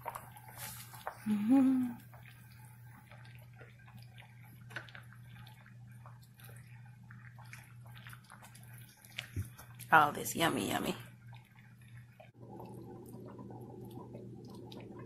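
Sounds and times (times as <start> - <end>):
steady low hum: 0.0 - 15.0
person humming: 1.2 - 2.0.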